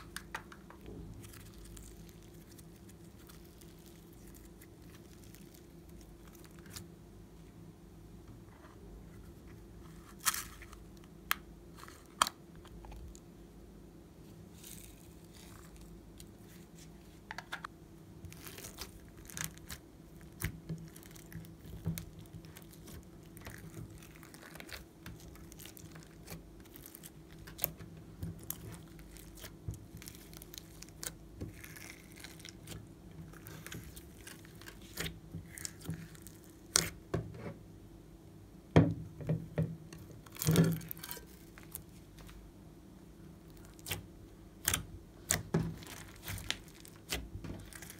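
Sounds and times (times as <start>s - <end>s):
slime tearing and crackling: 1.2s - 6.9s, 18.2s - 37.0s, 40.2s - 42.0s, 43.5s - 47.9s.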